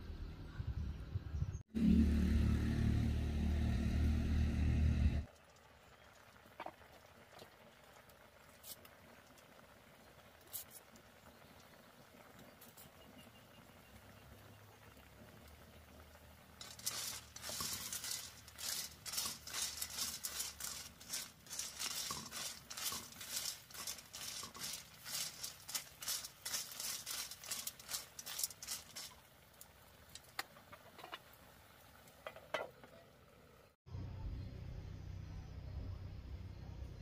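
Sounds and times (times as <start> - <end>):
utensil stirring in a pan: 16.6 - 31.2.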